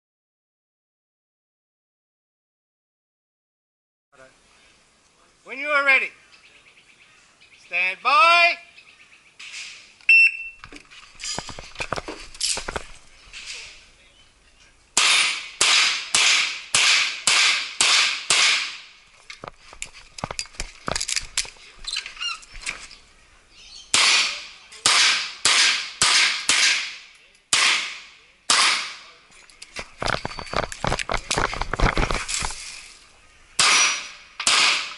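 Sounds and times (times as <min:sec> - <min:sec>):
pistol shots: 0:15.0 - 0:18.8, 0:23.9 - 0:29.1, 0:33.6 - 0:34.9
small clicks and knocks: 0:19.2 - 0:23.0, 0:29.4 - 0:32.5.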